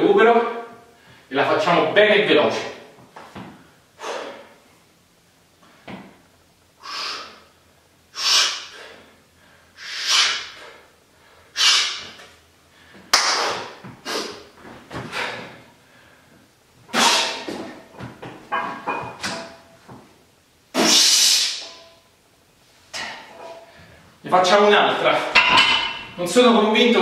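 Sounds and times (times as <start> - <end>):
man breathing hard: 3.6 - 4.6, 6.8 - 17.6.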